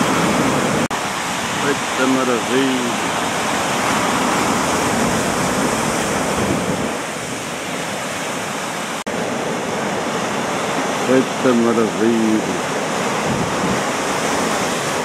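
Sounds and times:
surf breaking on rocky shore: 0.0s - 15.0s.

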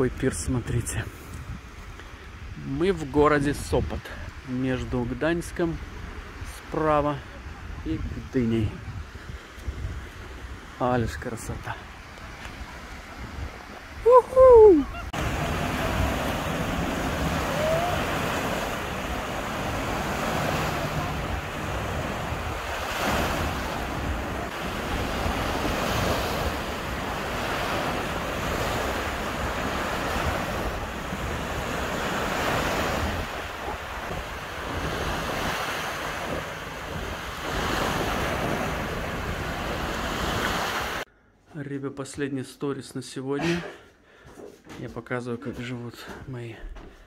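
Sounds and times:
small waves breaking on shore: 0.7s - 41.1s
wind buffeting microphone: 0.9s - 2.7s, 7.3s - 10.8s, 11.6s - 41.0s.

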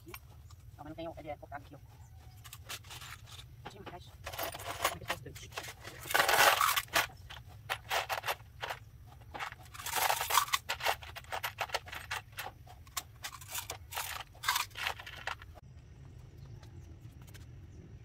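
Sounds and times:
metal screws clattering in plastic tub: 2.4s - 3.5s, 4.2s - 15.6s.

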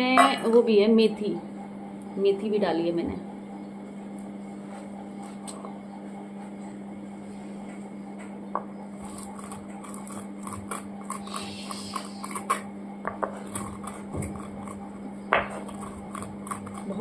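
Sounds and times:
stone scraping: 9.0s - 12.6s.

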